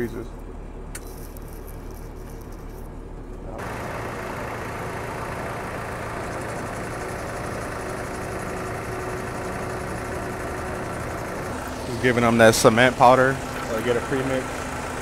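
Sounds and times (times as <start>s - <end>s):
truck engine running: 0.0s - 15.0s
mixer machinery: 3.5s - 15.0s.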